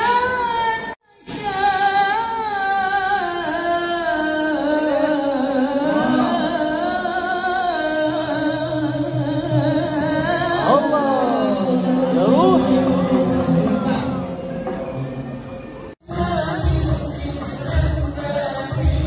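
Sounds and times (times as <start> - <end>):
men singing into microphones: 16.0 - 19.0.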